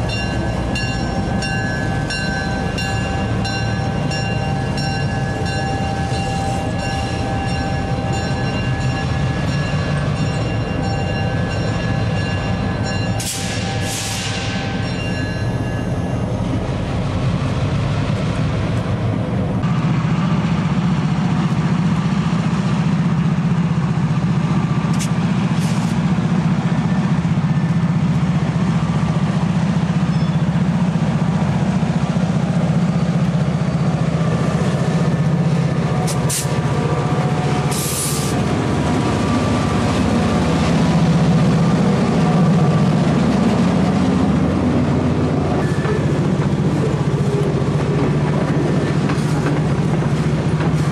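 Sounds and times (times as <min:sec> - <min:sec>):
diesel locomotive working under load: 0:00.0 - 0:50.9.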